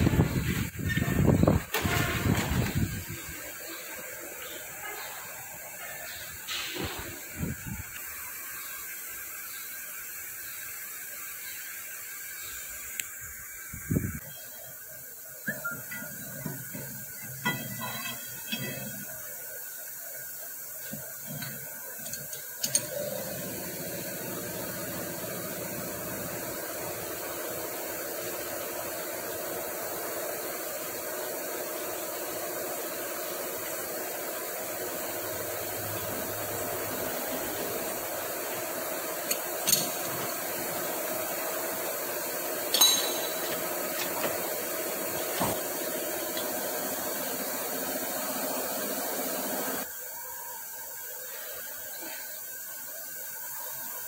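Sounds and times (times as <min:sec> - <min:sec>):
metal clinks and knocks: 0:42.7 - 0:43.5.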